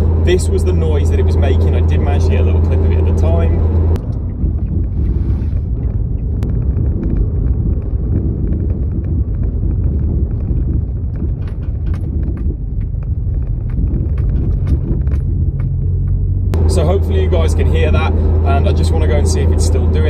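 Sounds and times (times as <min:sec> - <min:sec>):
low rumble inside moving car: 0:00.0 - 0:20.0
knocks and rattles: 0:04.0 - 0:16.6.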